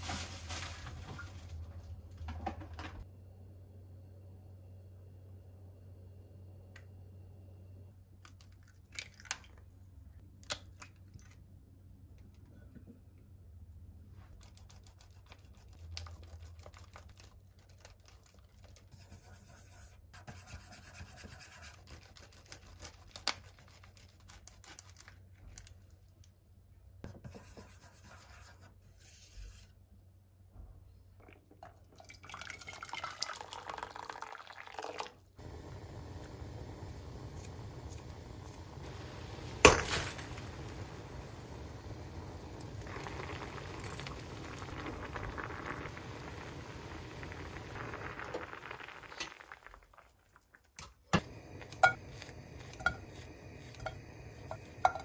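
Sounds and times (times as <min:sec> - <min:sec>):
water pouring into a pan: 0:31.5 - 0:50.8.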